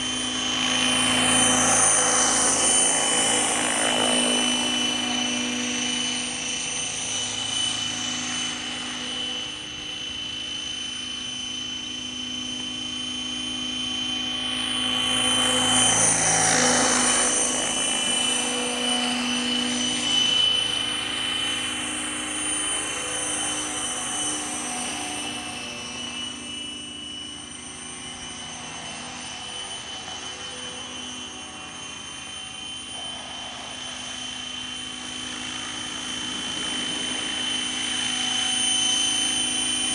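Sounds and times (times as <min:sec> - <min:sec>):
model helicopter motor whine: 0:00.0 - 0:39.9.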